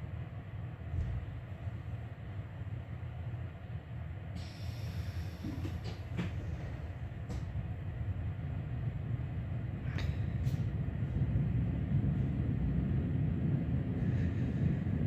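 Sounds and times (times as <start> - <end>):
train low rumble: 0.0 - 15.0
hiss: 4.4 - 6.0.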